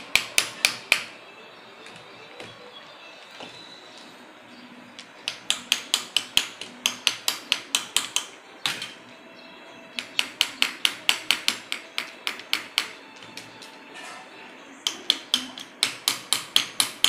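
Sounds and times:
hammer tapping on wood: 0.1s - 1.1s, 5.2s - 9.0s, 10.0s - 13.5s, 14.8s - 17.0s.

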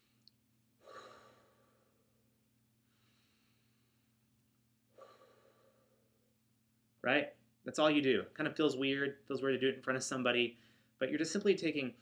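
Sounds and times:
man breathing deeply: 0.8s - 2.2s, 2.8s - 4.2s, 4.9s - 6.2s, 10.6s - 11.0s.

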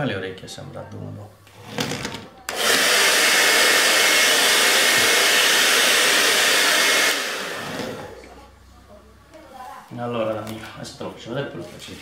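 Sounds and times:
hair dryer blowing: 2.5s - 8.3s.

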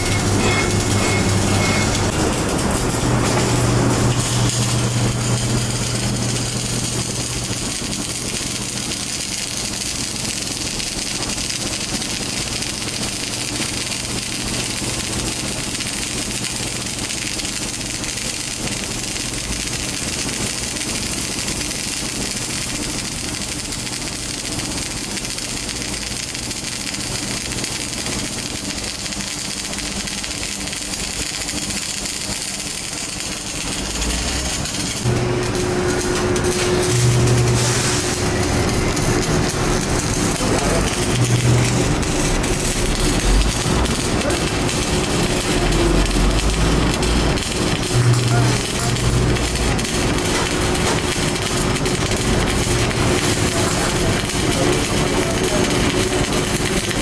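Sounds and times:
welding arc crackling: 0.0s - 57.0s
welding set hum: 0.0s - 57.0s.

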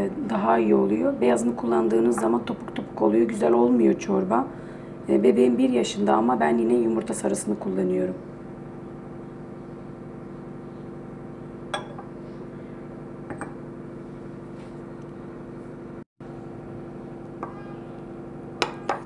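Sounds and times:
steady tonal hum: 0.0s - 14.8s
spoon clinking on glass bowl: 11.7s - 12.1s.

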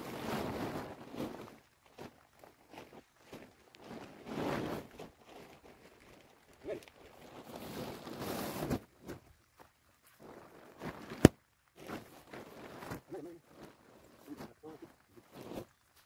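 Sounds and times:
plastic tarp rustling and scraping: 0.0s - 16.0s
footsteps on dry stalks: 0.4s - 16.0s.

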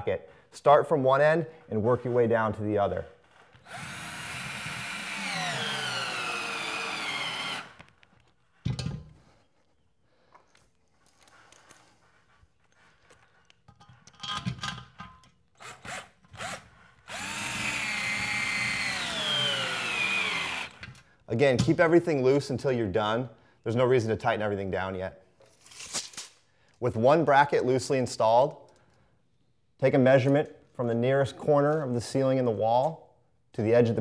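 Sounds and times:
cordless drill driving bolts: 3.6s - 8.0s, 15.6s - 21.0s.

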